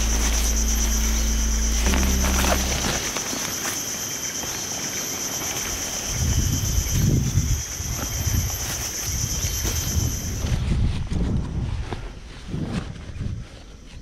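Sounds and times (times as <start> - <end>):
insects droning: 0.0 - 10.7.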